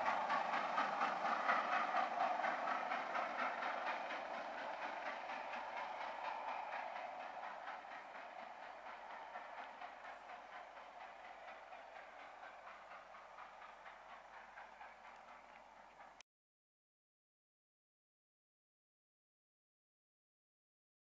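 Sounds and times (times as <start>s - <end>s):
train wheels clattering on rails: 0.0s - 16.2s.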